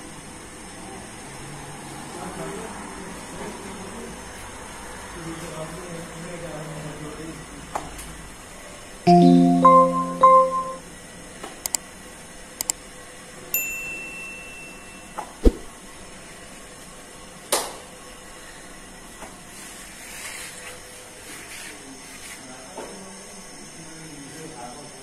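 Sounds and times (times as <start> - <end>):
short high chime: 9.1 - 10.8.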